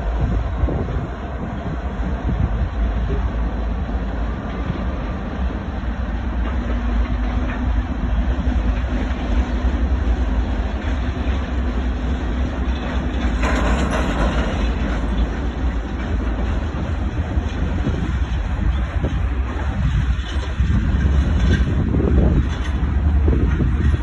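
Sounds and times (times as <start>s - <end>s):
freight train wheels clattering: 0.0s - 24.0s.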